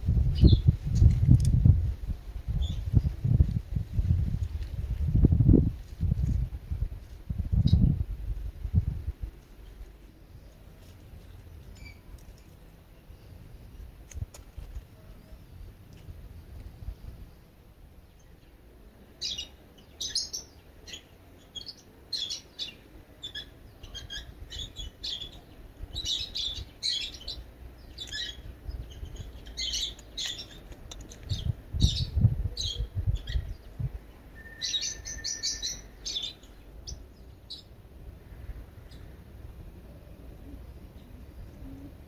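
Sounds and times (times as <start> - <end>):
small birds chirping: 9.5 - 39.2.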